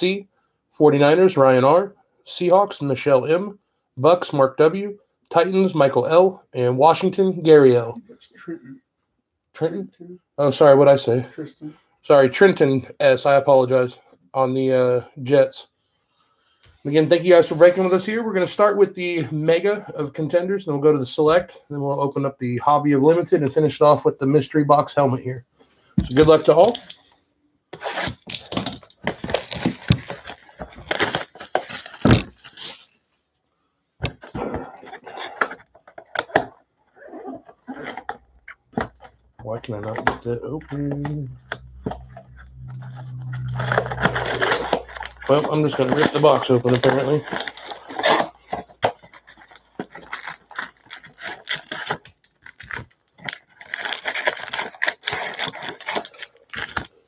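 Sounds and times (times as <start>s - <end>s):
cardboard box ripping: 27.8s - 32.9s, 43.5s - 52.0s
cardboard and wrapping crinkling: 27.8s - 33.2s, 34.0s - 57.0s.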